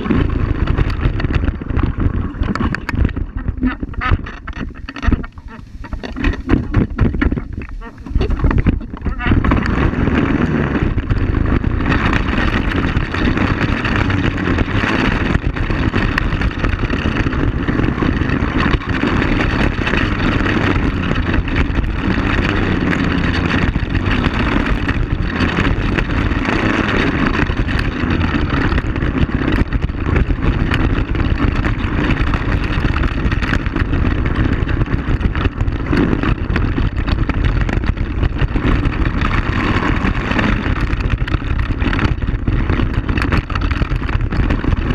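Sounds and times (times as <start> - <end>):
knocks and jolts from rough ground: 0.0 - 44.9
quad bike engine running: 0.0 - 44.9.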